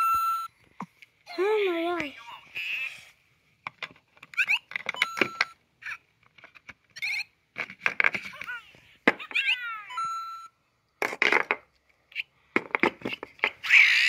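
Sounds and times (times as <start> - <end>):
electronic toy beeps and tones: 0.0 - 0.5, 4.4 - 6.0, 9.3 - 10.6
electronic chirping jingle: 9.9 - 10.5.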